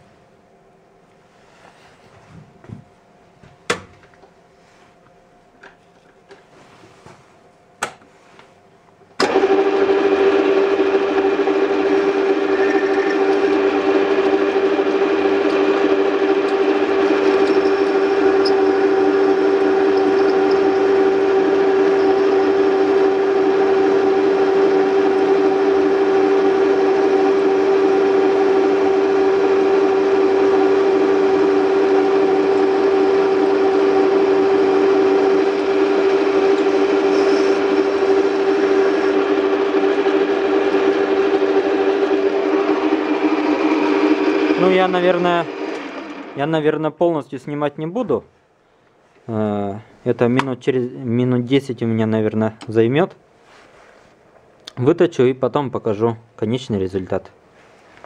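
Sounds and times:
metal lathe motor whine: 9.2s - 46.4s.

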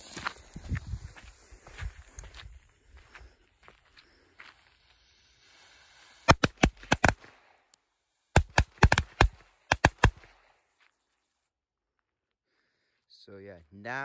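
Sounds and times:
firecrackers cracking: 4.7s - 7.7s, 8.3s - 10.4s.

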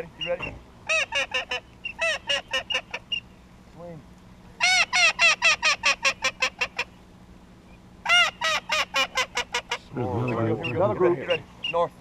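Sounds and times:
waterfowl call rapid notes: 0.2s - 3.3s, 4.6s - 7.0s, 8.0s - 11.9s.

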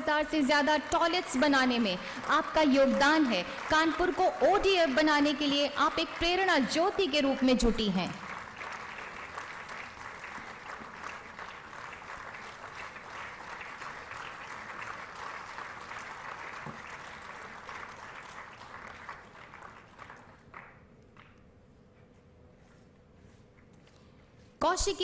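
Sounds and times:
audience applauding: 1.0s - 7.2s, 7.8s - 21.4s.

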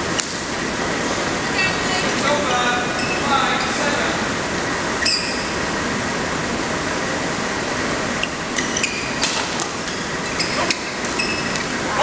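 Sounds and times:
sports hall hum and hiss: 0.0s - 12.0s
shoes squeaking on court: 3.0s - 3.3s, 8.2s - 11.8s.

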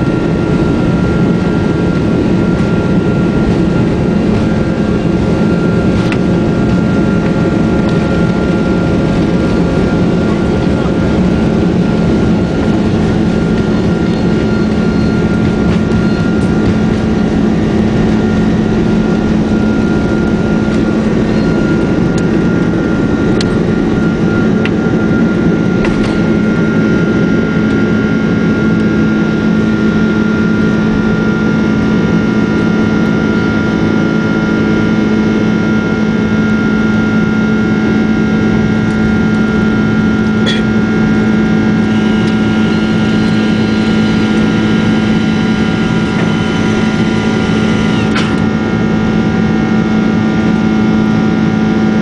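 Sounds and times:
jet engines roaring: 0.0s - 52.0s
thin whining tone: 12.3s - 31.7s, 32.6s - 51.8s.

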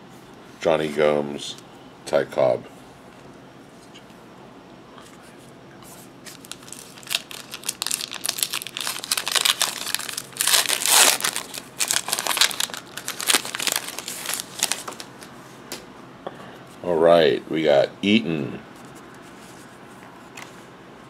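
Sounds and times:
wrapper crinkling and tearing: 6.3s - 15.1s.

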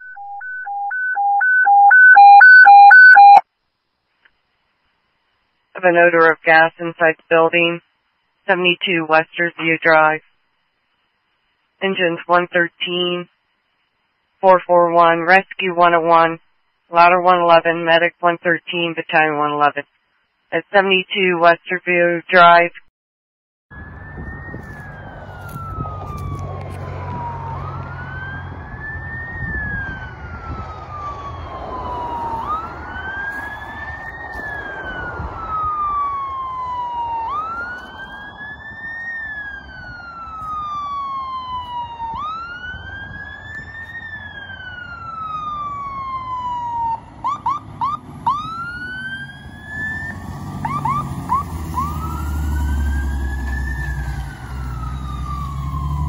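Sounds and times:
fire engine siren wailing: 0.0s - 3.4s, 23.7s - 56.0s
truck engine rumble: 23.8s - 56.0s.

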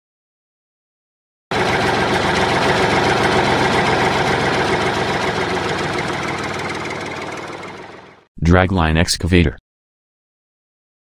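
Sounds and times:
heavy machine engine running: 1.5s - 8.3s.

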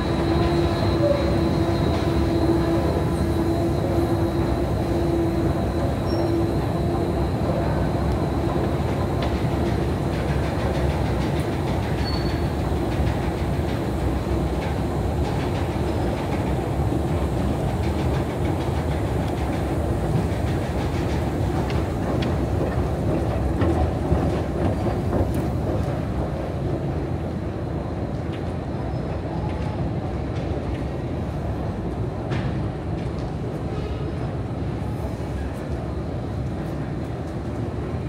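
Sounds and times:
faint clicks from moving steps: 17.8s - 26.4s, 32.3s - 33.4s.

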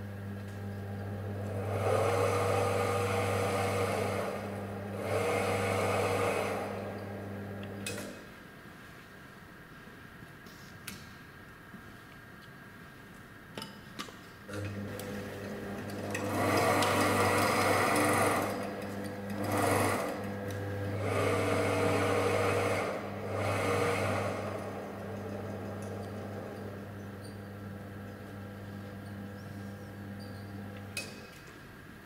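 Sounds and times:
electric motor humming and whirring: 0.1s - 7.9s, 14.5s - 31.0s.

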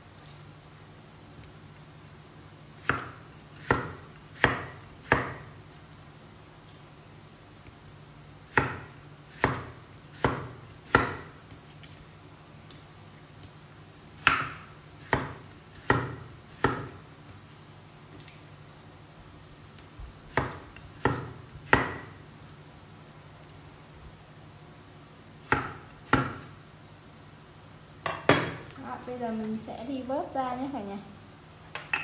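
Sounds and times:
knife chopping on wooden board: 2.8s - 5.5s, 8.5s - 11.4s, 14.2s - 17.0s, 20.3s - 22.1s, 25.4s - 26.5s.

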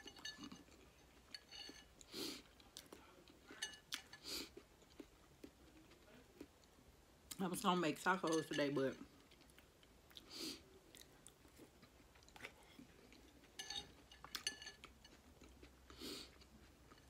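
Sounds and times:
metal utensil clinking on glass bowl: 0.0s - 1.9s, 3.6s - 4.1s, 8.1s - 9.0s, 13.6s - 15.1s
person chewing: 0.0s - 7.4s, 9.1s - 17.0s.

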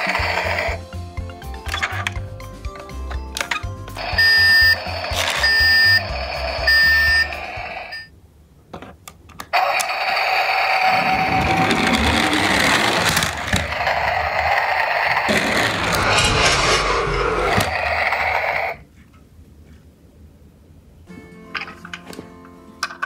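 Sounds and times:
toy wheels whirring on wood: 0.0s - 0.8s, 9.6s - 18.8s
background music: 0.0s - 8.1s, 21.1s - 23.0s
toy electronic beeps: 4.0s - 8.1s.

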